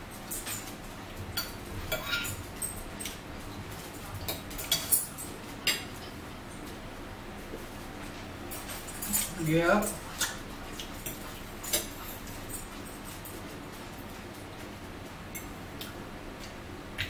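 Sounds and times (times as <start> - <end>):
forks clinking on plates: 0.1 - 6.7, 8.5 - 13.6.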